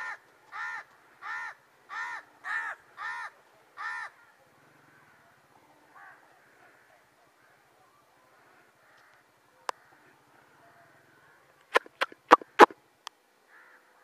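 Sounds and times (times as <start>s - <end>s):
crow cawing: 0.0s - 4.2s, 8.8s - 9.2s, 13.5s - 13.9s.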